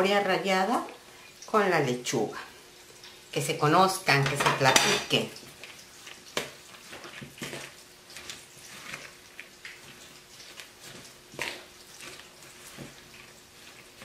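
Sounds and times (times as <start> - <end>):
salad rustling and crunching in bowl: 5.3 - 14.0.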